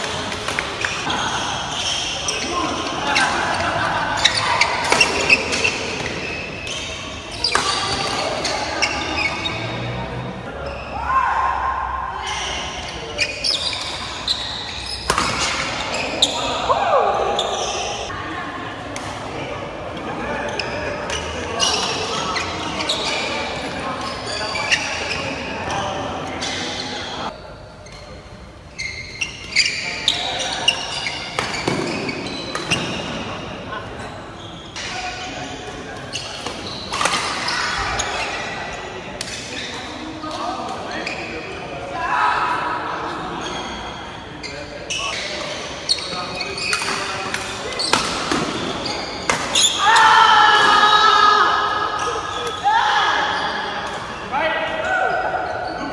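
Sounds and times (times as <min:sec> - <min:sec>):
shoes squeaking on court: 0:00.0 - 0:10.0, 0:12.3 - 0:16.6, 0:17.3 - 0:18.1, 0:20.4 - 0:33.6, 0:34.3 - 0:41.4, 0:43.4 - 0:49.9, 0:55.1 - 0:55.9.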